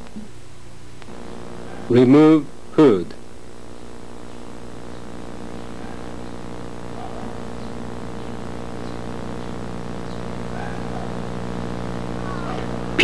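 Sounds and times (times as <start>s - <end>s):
low hum with overtones: 0.0s - 13.0s.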